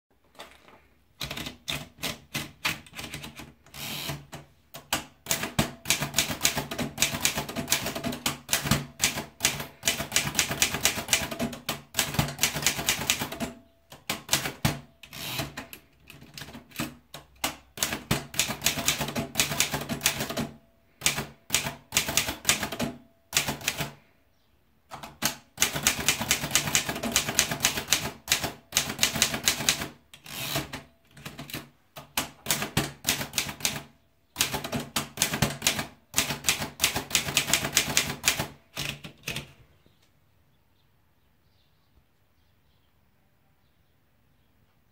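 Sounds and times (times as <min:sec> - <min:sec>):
manual typewriter key strikes: 0:04.1 - 0:23.9, 0:24.9 - 0:33.8, 0:34.4 - 0:39.5.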